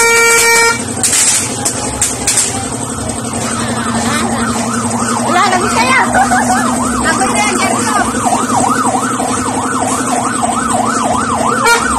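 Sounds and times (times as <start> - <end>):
steady low drone: 0.0 - 11.9
warbling electronic siren tone: 2.3 - 11.9.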